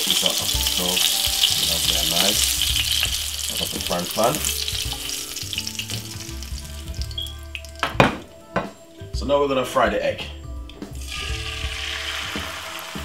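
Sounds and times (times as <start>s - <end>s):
oil sizzling in frying pan: 0.0s - 8.3s, 10.7s - 13.0s.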